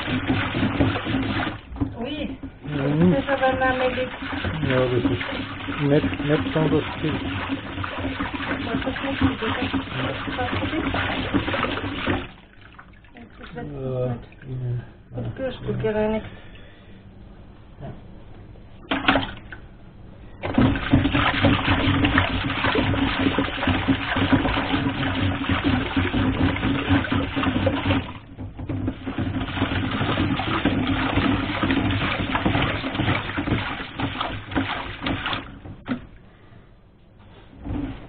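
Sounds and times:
scrubbing under water: 0:00.0 - 0:12.5, 0:20.4 - 0:36.0
water sloshing in a metal sink: 0:00.0 - 0:15.9, 0:18.8 - 0:36.5, 0:37.5 - 0:38.0.

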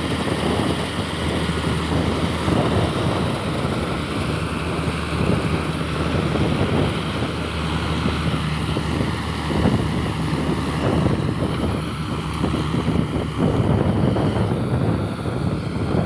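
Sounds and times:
combine harvester running: 0:00.0 - 0:16.0.

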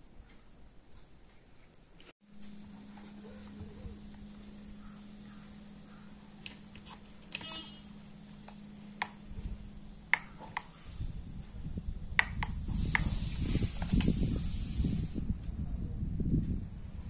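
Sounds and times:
rustling handling noise: 0:01.6 - 0:11.6.

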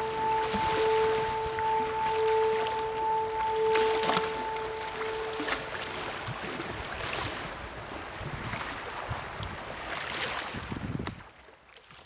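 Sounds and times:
waves lapping on stone shore: 0:00.0 - 0:12.0
wind buffeting microphone: 0:05.5 - 0:11.3.

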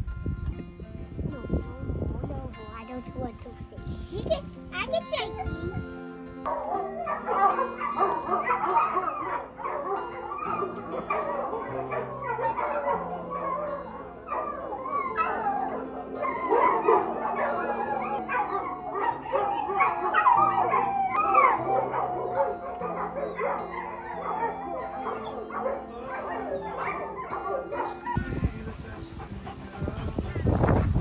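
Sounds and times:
dogs yipping: 0:06.4 - 0:30.8
dogs howling: 0:06.5 - 0:30.8
background music with bass line: 0:27.9 - 0:31.0.

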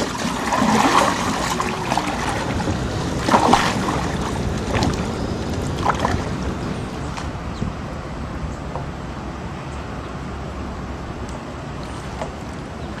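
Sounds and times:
splashes or knocks: 0:00.0 - 0:06.4
wind on microphone: 0:00.0 - 0:08.7
water rushing along boat hull: 0:00.0 - 0:13.0.

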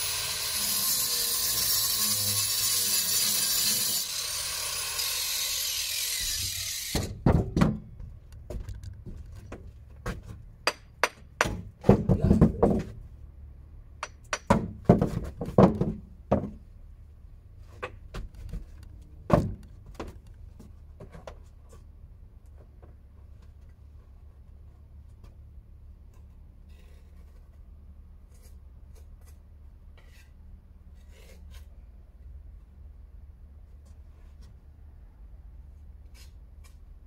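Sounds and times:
power tool running: 0:00.0 - 0:07.1
sharp knocks and thuds: 0:06.9 - 0:13.0, 0:14.2 - 0:16.7, 0:17.8 - 0:21.4.

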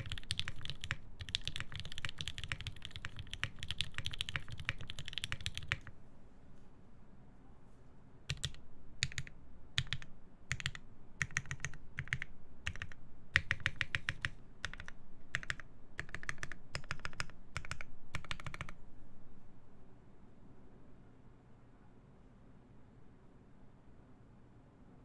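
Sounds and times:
mechanical keyboard typing: 0:00.0 - 0:05.9, 0:08.3 - 0:18.8.

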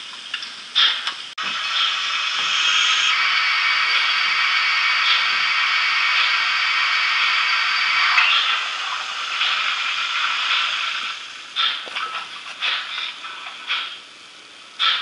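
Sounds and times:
model locomotive steam hiss: 0:01.4 - 0:11.9.

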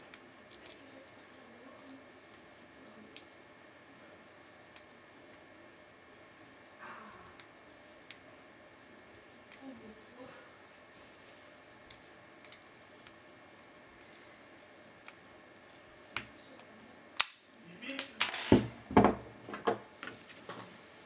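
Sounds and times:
metal clinking on wooden table: 0:18.2 - 0:19.2.

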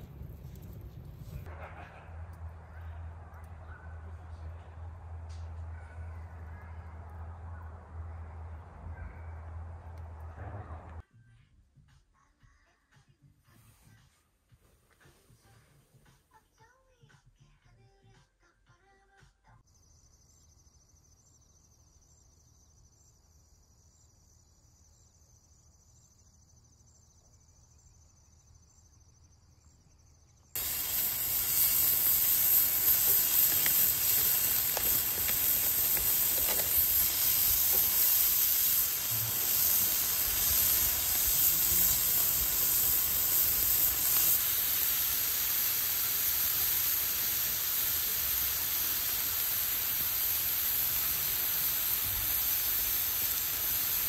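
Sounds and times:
meat sizzling on a grill plate: 0:30.6 - 0:54.0.

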